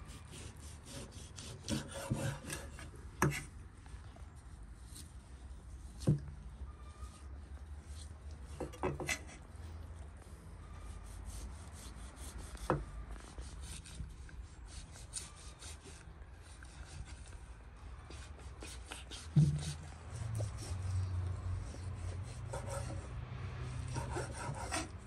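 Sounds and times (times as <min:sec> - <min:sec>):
knife slicing through meat: 0:00.1 - 0:02.9, 0:11.0 - 0:17.3, 0:18.1 - 0:21.1.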